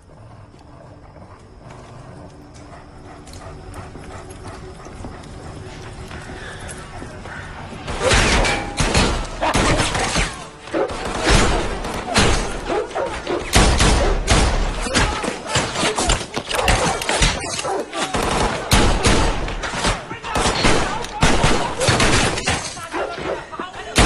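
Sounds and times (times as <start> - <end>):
rapid gunshots: 7.9 - 12.7, 18.0 - 22.8.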